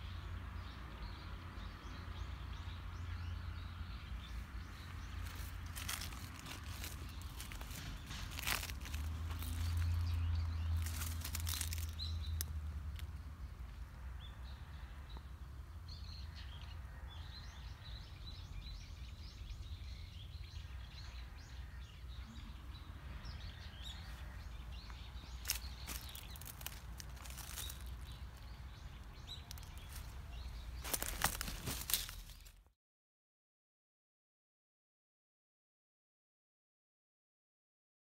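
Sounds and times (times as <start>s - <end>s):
small birds chirping: 0.0s - 32.6s
short crackles: 10.8s - 12.5s, 25.4s - 28.2s.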